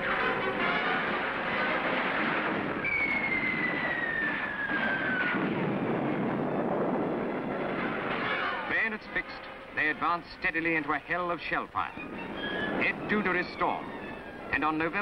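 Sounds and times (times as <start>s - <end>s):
incoming shell whistle: 2.8s - 5.4s, 12.0s - 14.5s.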